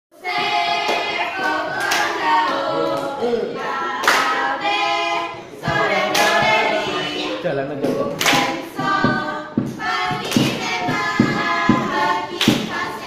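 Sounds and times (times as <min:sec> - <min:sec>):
girls singing in unison: 0:00.2 - 0:13.0
sharp hand claps: 0:00.9 - 0:03.1, 0:07.9 - 0:09.0, 0:09.7 - 0:13.0.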